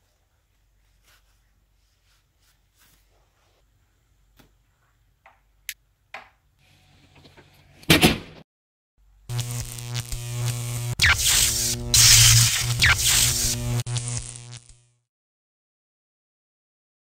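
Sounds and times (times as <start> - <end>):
electrical buzz with crackling static: 9.2 - 15.1.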